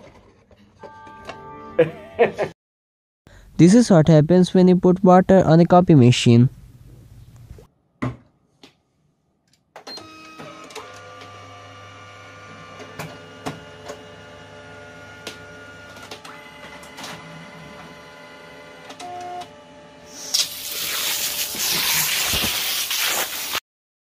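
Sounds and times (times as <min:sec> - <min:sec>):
copier motors whirring: 0:09.9 - 0:20.1.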